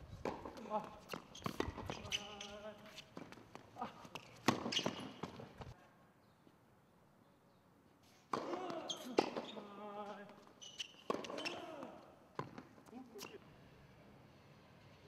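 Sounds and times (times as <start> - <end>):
tennis balls struck and bouncing: 0.2 - 5.8, 8.3 - 13.4
voices: 8.4 - 10.5.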